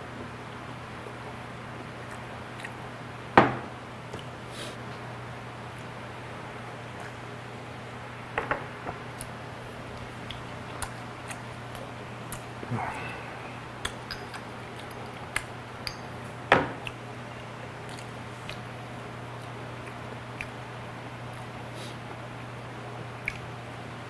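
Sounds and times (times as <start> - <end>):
glass bottle knocking on table: 3.4 - 3.7.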